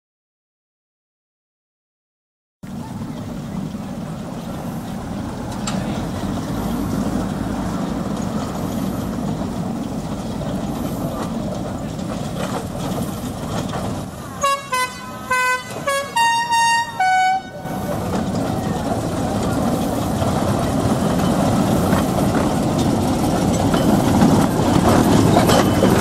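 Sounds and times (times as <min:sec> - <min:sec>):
mine locomotive running: 0:02.6 - 0:26.0
locomotive horn short toots: 0:14.2 - 0:18.2.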